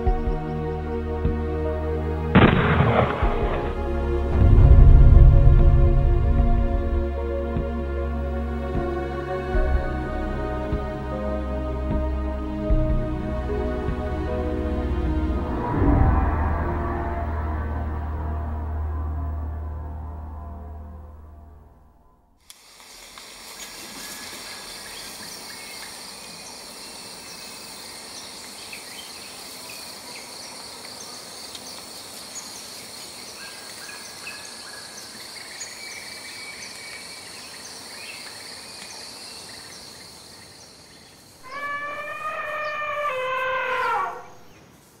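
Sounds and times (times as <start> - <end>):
high insect drone: 22.5 - 45.0
elephant trumpeting: 41.4 - 44.4.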